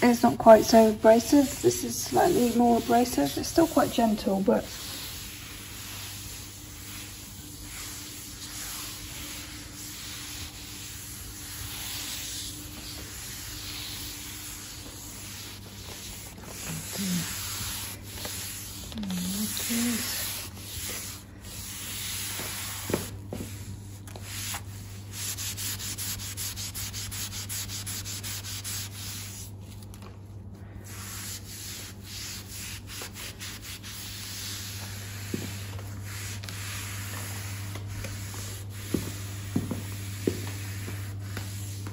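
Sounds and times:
cloth scrubbing gritty powder: 0.0 - 29.8.

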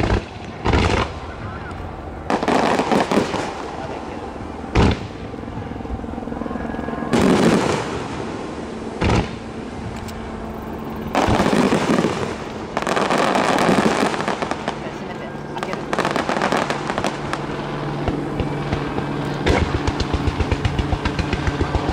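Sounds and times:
sharp firework booms: 0.0 - 1.3, 2.3 - 3.7, 4.7 - 5.3, 7.1 - 9.4, 11.1 - 14.8, 15.7 - 21.9
rumbling crackling bursts: 0.0 - 21.9.

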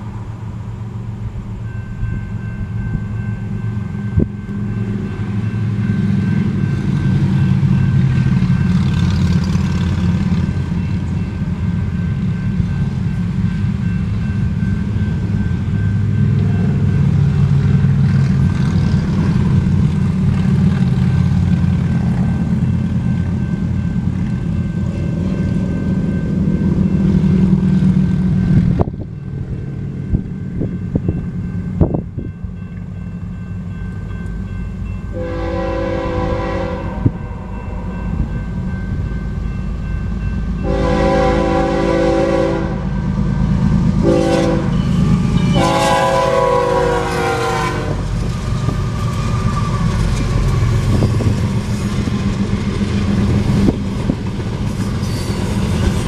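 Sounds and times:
railroad crossing bell ringing: 0.0 - 56.0.

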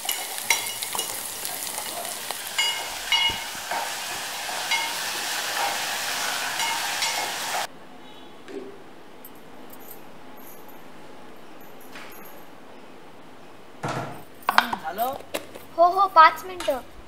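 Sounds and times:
metal spoon clinking against pot: 0.0 - 3.9, 4.7 - 5.8, 6.6 - 7.5
food sizzling in a metal pot: 0.0 - 7.7.

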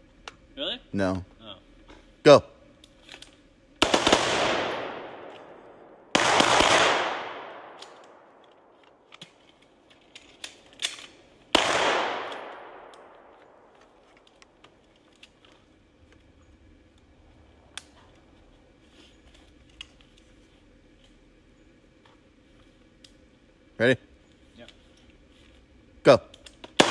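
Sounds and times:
rifle shots echoing: 3.8 - 9.1, 10.9 - 13.8
gear handling clicks and knocks: 7.8 - 11.2.

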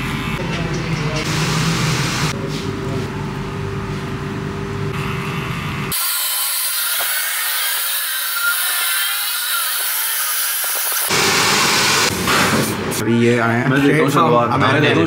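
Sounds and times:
hair dryer blowing: 10.8 - 12.2.

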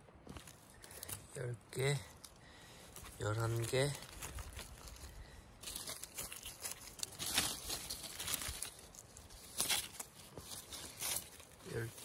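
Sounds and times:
rustling of dry pine needles: 0.2 - 12.0.

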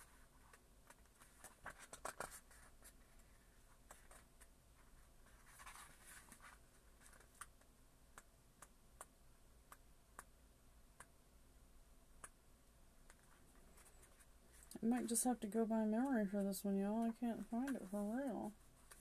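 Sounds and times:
book pages rustling: 0.0 - 7.7, 13.1 - 15.1, 18.7 - 19.0.

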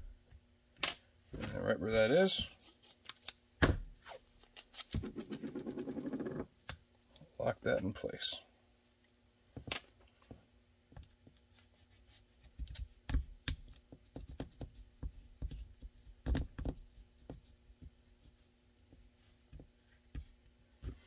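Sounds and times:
faint steady hum: 0.0 - 21.0
hands tapping and knocking on mat: 12.6 - 18.0.

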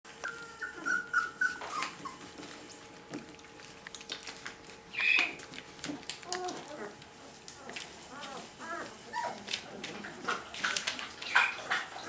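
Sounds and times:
puppies whimpering: 0.1 - 2.6, 4.9 - 5.5, 6.2 - 9.6, 10.3 - 12.0
puppy squealing: 0.2 - 2.3, 4.9 - 5.4.

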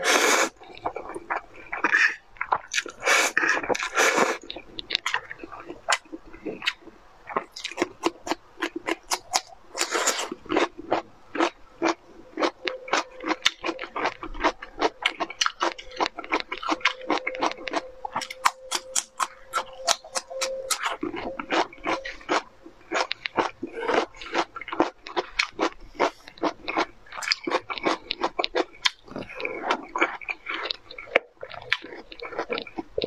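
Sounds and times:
chewing: 0.0 - 33.0
crisp crunches of cucumber: 0.7 - 33.0.

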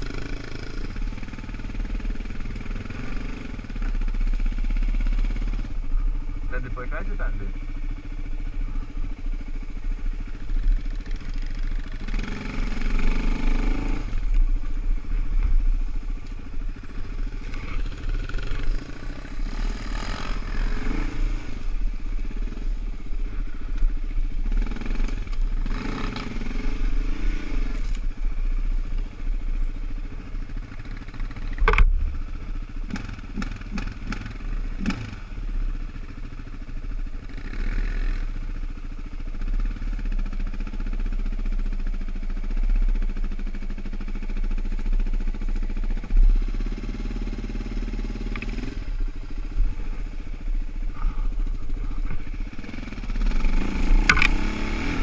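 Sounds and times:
quad engine revving: 0.0 - 5.7, 10.8 - 14.4, 17.0 - 22.8, 24.4 - 28.0, 32.8 - 35.4, 37.2 - 38.4, 45.9 - 55.0.

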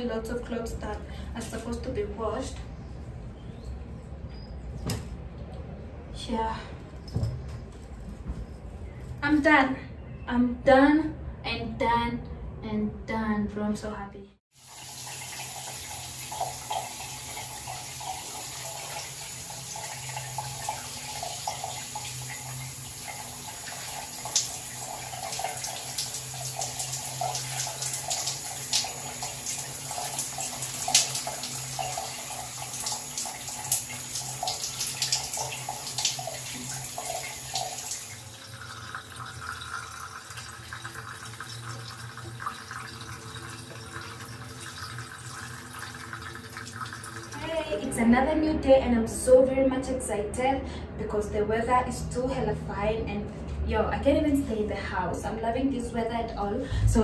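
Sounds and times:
shower water spraying on tiles: 14.6 - 42.6.

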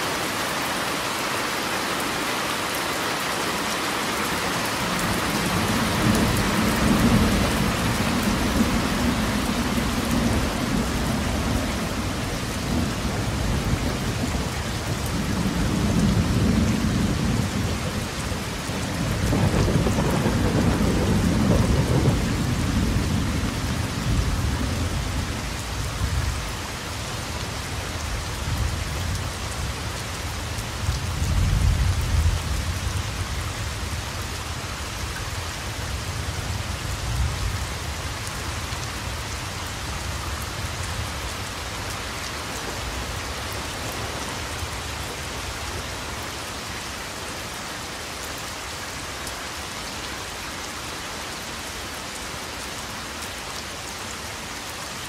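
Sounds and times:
steady rain falling: 0.0 - 55.0
thunder rumbling: 5.0 - 25.4.

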